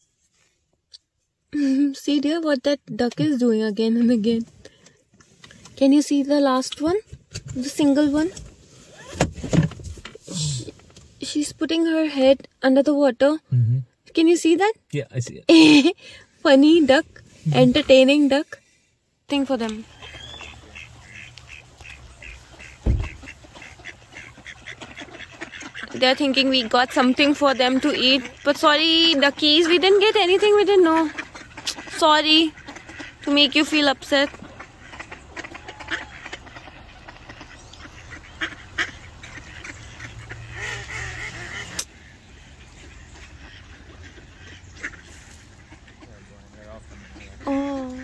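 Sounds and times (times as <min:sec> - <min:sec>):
ducks quacking: 0:16.9 - 0:18.2, 0:19.6 - 0:48.0
low thump: 0:22.8 - 0:23.3.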